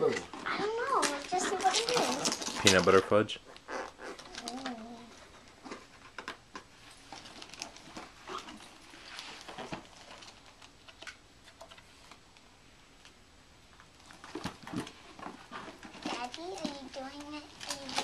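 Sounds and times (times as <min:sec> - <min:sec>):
gift wrapping paper crinkling: 0:00.8 - 0:03.1, 0:04.2 - 0:12.1, 0:14.0 - 0:18.0
paper rustle: 0:01.0 - 0:03.0, 0:14.1 - 0:18.0.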